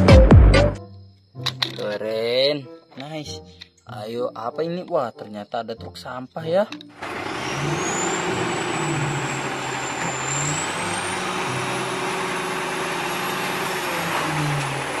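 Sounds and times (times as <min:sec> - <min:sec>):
garbage truck engine: 0:07.0 - 0:15.0
high hydraulic whine: 0:07.0 - 0:15.0.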